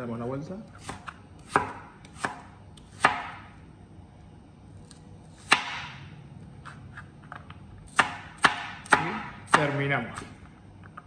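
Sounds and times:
knife chopping on cutting board: 0:00.7 - 0:03.5, 0:04.8 - 0:06.9, 0:07.9 - 0:10.4.

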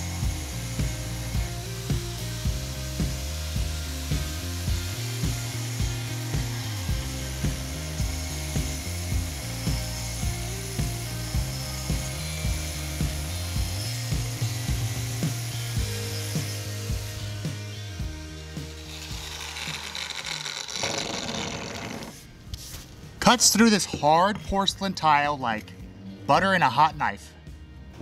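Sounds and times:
hole saw grinding through tile: 0:00.0 - 0:17.4, 0:18.4 - 0:22.3
background music with steady beat: 0:00.0 - 0:20.8, 0:22.2 - 0:28.0.

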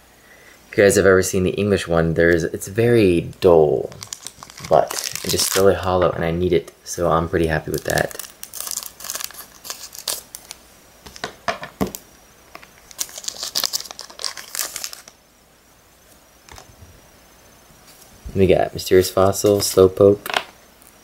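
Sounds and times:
wrapper crinkling: 0:03.8 - 0:06.0, 0:07.6 - 0:11.3, 0:12.6 - 0:15.2
scissors cutting wrapper: 0:03.9 - 0:05.7, 0:07.7 - 0:10.6, 0:12.9 - 0:15.1.

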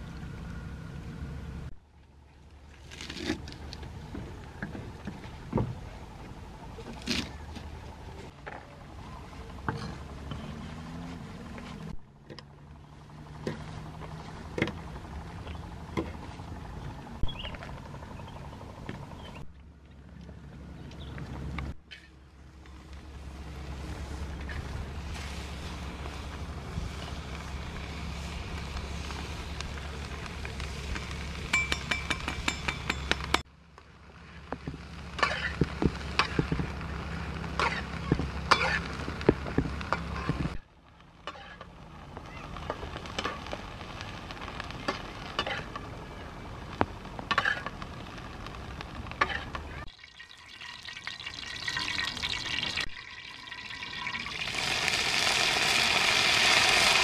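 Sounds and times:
oil sizzling: 0:22.5 - 0:33.4, 0:34.7 - 0:57.0
metal spatula scraping a pan: 0:41.2 - 0:41.6.

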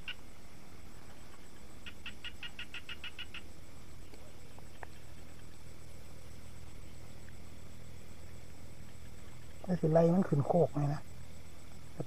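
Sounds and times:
steady low hum: 0:00.0 - 0:12.0
small animal chirping: 0:01.2 - 0:03.5.

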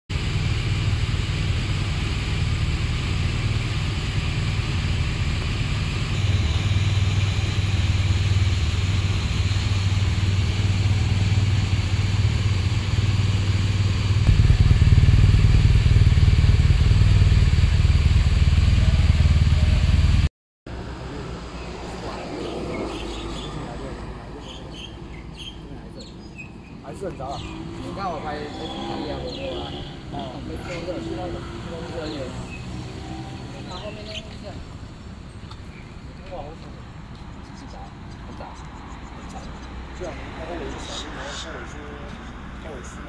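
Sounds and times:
motorcycle engine idling: 0:00.1 - 0:20.3.

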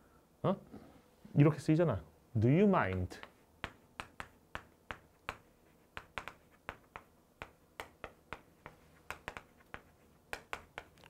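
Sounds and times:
chalk tapping on a chalkboard: 0:02.9 - 0:11.0.

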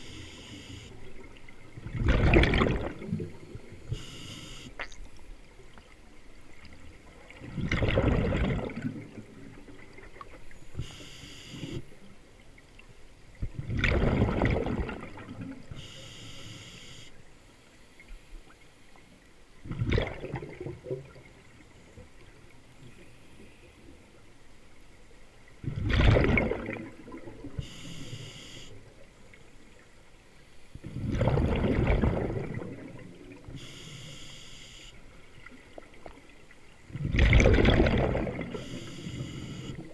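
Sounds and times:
regulator inhale hiss: 0:00.0 - 0:01.0, 0:03.9 - 0:04.7, 0:10.8 - 0:11.8, 0:15.8 - 0:17.1, 0:27.6 - 0:28.8, 0:33.6 - 0:35.0, 0:38.6 - 0:39.7
exhaled bubbles rushing: 0:01.2 - 0:04.0, 0:07.3 - 0:10.0, 0:13.4 - 0:15.6, 0:19.6 - 0:21.3, 0:25.6 - 0:27.6, 0:30.8 - 0:33.5, 0:36.9 - 0:38.7.

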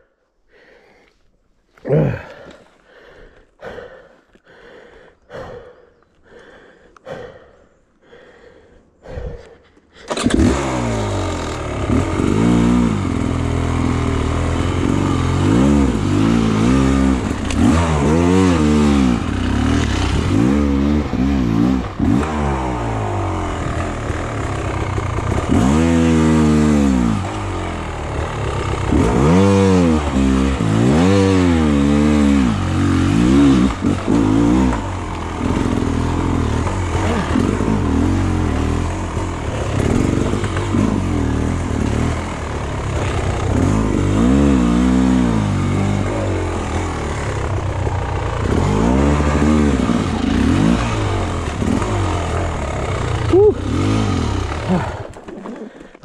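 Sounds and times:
heavy rhythmic breathing: 0:00.0 - 0:10.2, 0:54.6 - 0:56.0
dirt bike engine revving: 0:10.1 - 0:55.8.

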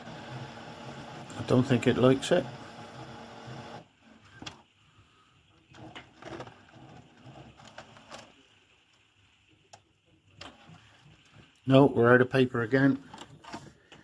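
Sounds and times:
printer paper feed humming: 0:00.0 - 0:04.6, 0:05.6 - 0:08.6, 0:10.3 - 0:11.6
printer clicks and whirs: 0:00.0 - 0:04.7, 0:05.6 - 0:09.0, 0:09.6 - 0:11.6.

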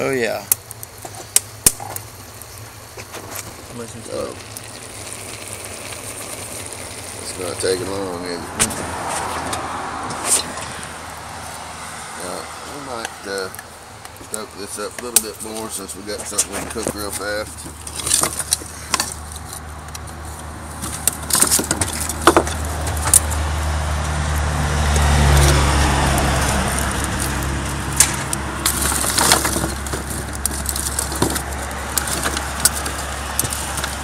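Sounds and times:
hiss: 0:00.6 - 0:08.3
foil packet crinkling: 0:14.3 - 0:23.4, 0:25.3 - 0:34.0.

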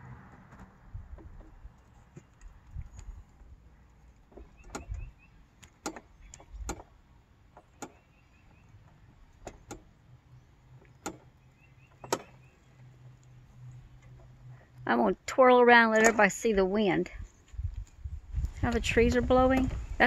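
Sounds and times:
wind rumble on microphone: 0:00.0 - 0:01.8, 0:02.4 - 0:03.6, 0:16.4 - 0:20.0
metal hardware clicks and knocks: 0:10.8 - 0:12.5.

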